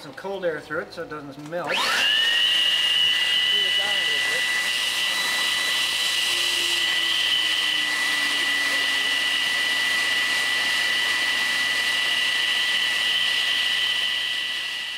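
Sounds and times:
air blower whining: 1.6s - 14.9s.

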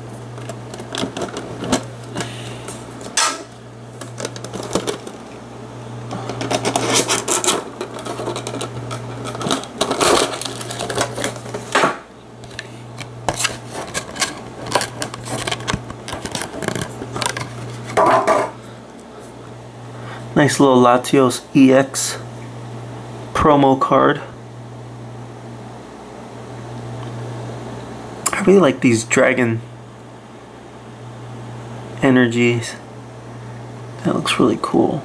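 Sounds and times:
steady low hum: 0.0s - 35.0s
cards and packs rustling: 4.0s - 5.4s, 6.1s - 11.8s, 12.4s - 18.0s.

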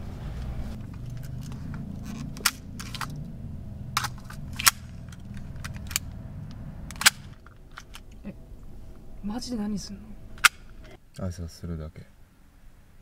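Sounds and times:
low steady rumble: 0.0s - 13.0s
pistol metallic clicks: 4.0s - 8.2s, 10.4s - 10.7s.

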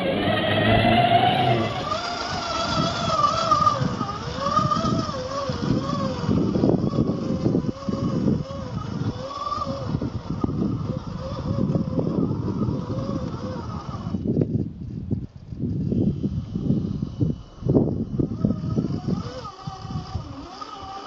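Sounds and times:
electric motor whining: 0.0s - 21.0s.

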